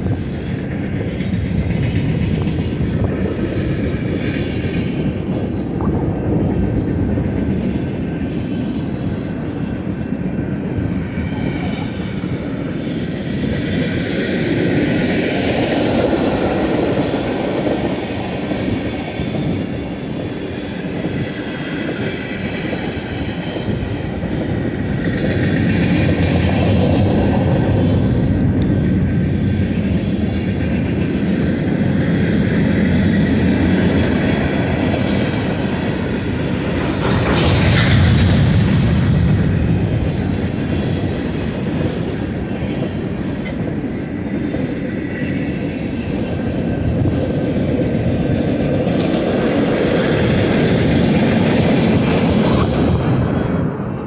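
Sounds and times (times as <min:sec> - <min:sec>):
wheels rumbling on rail: 0:00.0 - 0:54.0.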